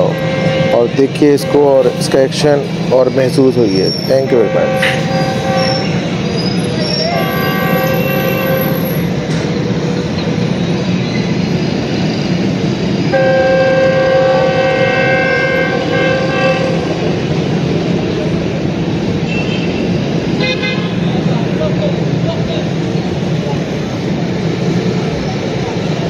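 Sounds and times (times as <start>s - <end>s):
locomotive air horn blasts: 0.0s - 2.6s, 4.1s - 6.1s, 6.8s - 9.1s, 13.1s - 17.2s, 19.3s - 21.0s
low locomotive rumble: 0.0s - 26.0s.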